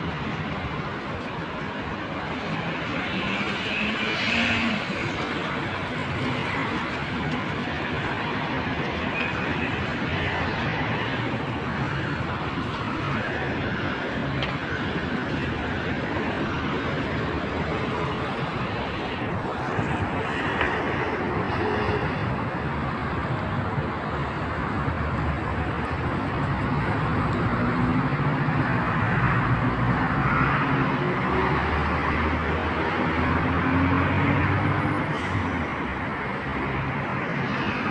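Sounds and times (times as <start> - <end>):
cars passing on road: 0.0 - 37.9.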